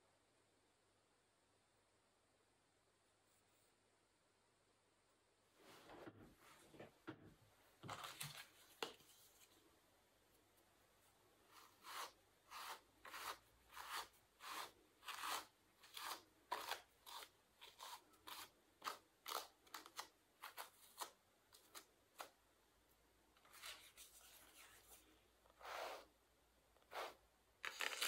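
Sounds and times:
scratchy carding strokes: 11.5s - 22.3s, 23.5s - 26.2s, 26.8s - 28.0s
soft rustle: 23.4s - 26.1s.

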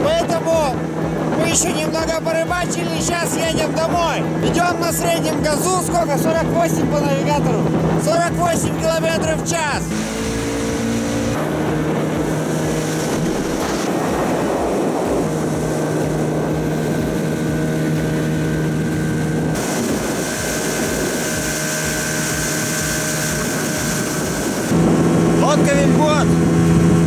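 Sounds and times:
outboard motor running: 0.0s - 27.0s.

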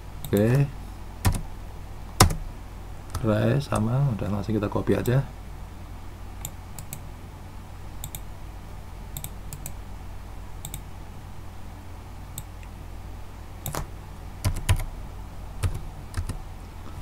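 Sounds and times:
steady low hum: 0.0s - 17.0s
mouse clicks: 8.0s - 8.3s, 9.2s - 9.8s, 10.6s - 10.9s
keyboard keystrokes: 13.6s - 14.9s.

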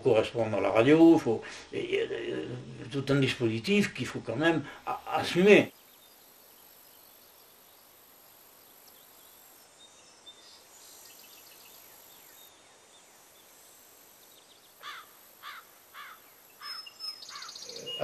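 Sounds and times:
bird chirps: 16.0s - 18.0s.

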